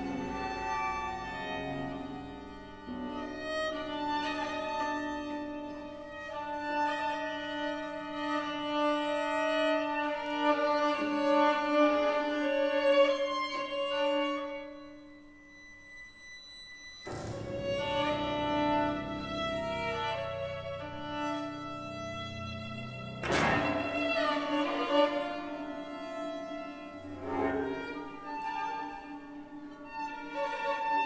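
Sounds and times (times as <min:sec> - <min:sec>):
solo violin: 0:00.0 - 0:31.0
chamber ensemble playing: 0:17.1 - 0:31.0.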